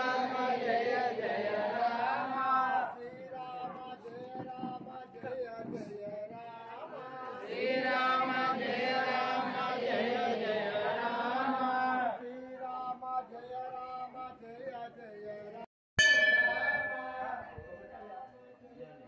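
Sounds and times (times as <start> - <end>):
person chanting mantras: 16.7 - 19.0.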